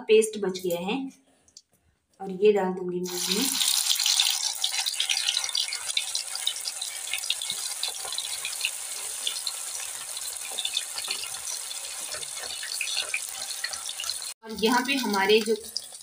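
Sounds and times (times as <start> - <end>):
oil sizzling and crackling: 3.0 - 16.0.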